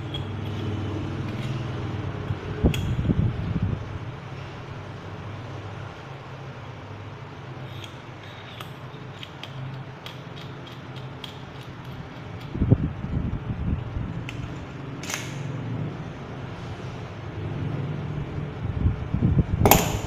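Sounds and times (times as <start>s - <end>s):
baton clicking: 19.7s - 20.0s.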